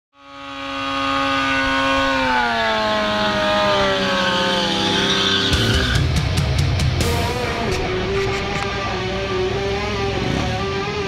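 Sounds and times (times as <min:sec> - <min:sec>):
motorcycle engine at high revs: 0:00.1 - 0:11.0
spinning tyre hissing: 0:04.4 - 0:06.1
heavy rock music with drums: 0:05.0 - 0:11.0.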